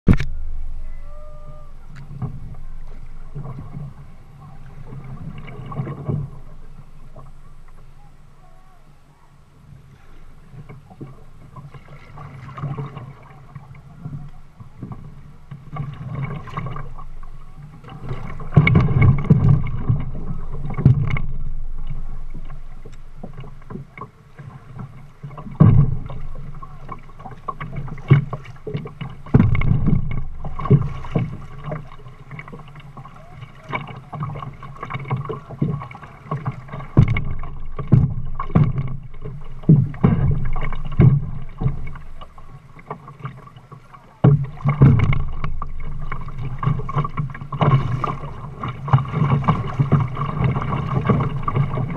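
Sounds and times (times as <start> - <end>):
water splashing against kayak hull: 0.1 - 51.9
knocks on kayak hull: 25.4 - 32.5, 33.7 - 42.3, 44.2 - 51.9.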